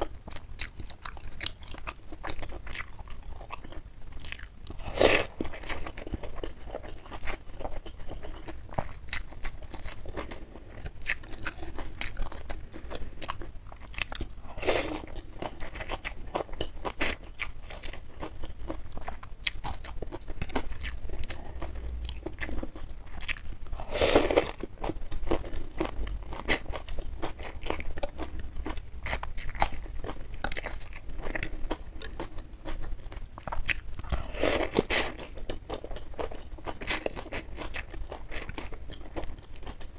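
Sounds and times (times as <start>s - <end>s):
wet chewing and mouth clicks: 14.9s - 23.6s.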